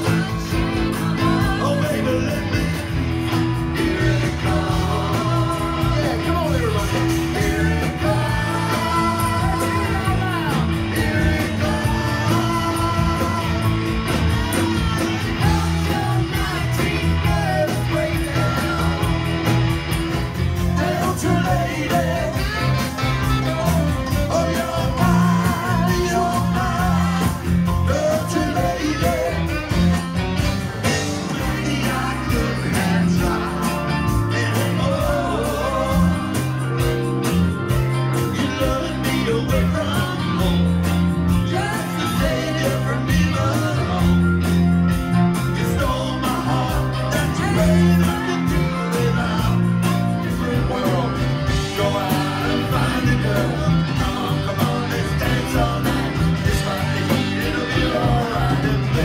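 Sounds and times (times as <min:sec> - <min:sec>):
bass guitar: 0:00.0 - 0:59.0
electric guitars: 0:00.0 - 0:59.0
person singing: 0:03.7 - 0:19.6, 0:20.6 - 0:30.0, 0:45.4 - 0:59.0.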